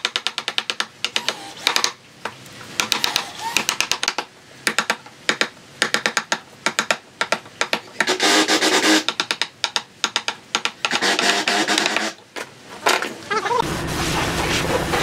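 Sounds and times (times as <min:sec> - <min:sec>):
chisel scraping wood: 0:07.7 - 0:09.2, 0:10.8 - 0:12.2.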